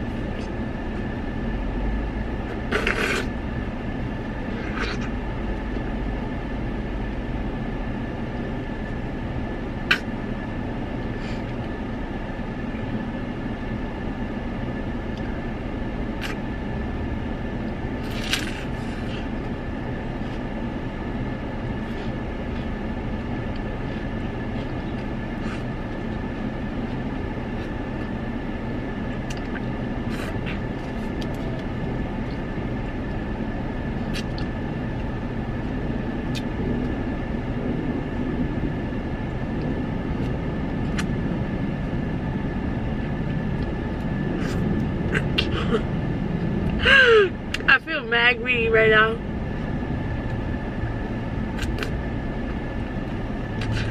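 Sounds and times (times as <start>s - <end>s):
car idling cabin drone: 0.0s - 53.9s
licking and lip-smacking: 16.2s - 16.4s, 51.6s - 52.0s.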